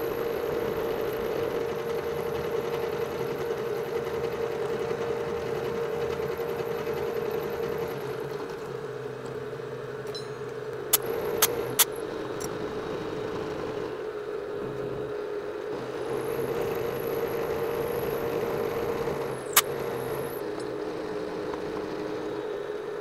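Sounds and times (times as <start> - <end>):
milling machine humming: 0.0 - 23.0
sharp clicks: 19.5 - 19.9.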